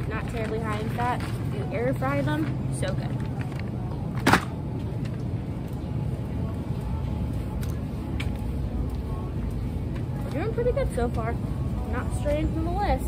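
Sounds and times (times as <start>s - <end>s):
shopping cart rolling: 0.0s - 5.3s.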